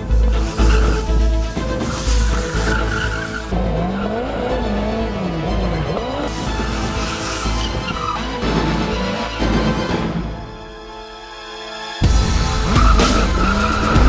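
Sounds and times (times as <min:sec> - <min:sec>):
tyres squealing: 0:00.4 - 0:09.9, 0:12.1 - 0:14.0
motorcycle engine revving: 0:00.4 - 0:10.0, 0:12.0 - 0:14.0
music with steady beat: 0:12.0 - 0:14.0.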